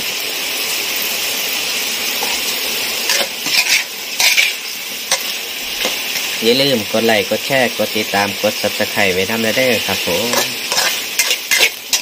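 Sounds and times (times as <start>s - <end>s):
beetles sizzling in a wok: 0.0s - 12.0s
spatula scraping a pan: 2.2s - 6.4s, 9.4s - 12.0s.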